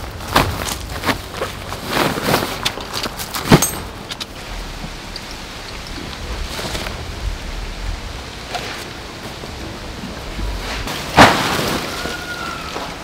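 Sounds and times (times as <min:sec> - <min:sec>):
nylon bag rustling: 0:00.0 - 0:03.8
tent fabric rustling: 0:00.0 - 0:03.8
poles knocking and clinking: 0:03.3 - 0:04.3
steady hiss: 0:03.9 - 0:11.6.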